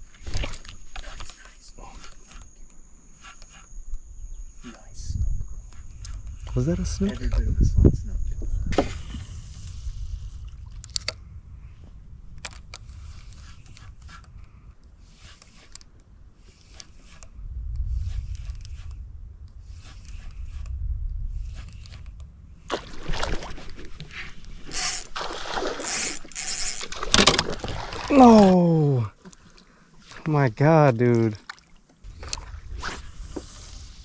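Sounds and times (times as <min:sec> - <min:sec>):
low rumble: 0:05.0 - 0:15.0, 0:17.2 - 0:24.7, 0:32.0 - 0:34.0
fish splashing in water: 0:24.7 - 0:28.5.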